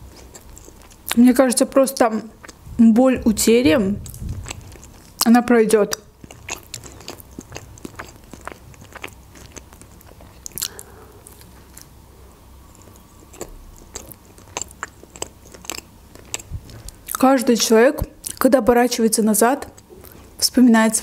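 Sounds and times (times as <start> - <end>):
close chewing of bread: 0.0 - 3.4, 4.0 - 17.2.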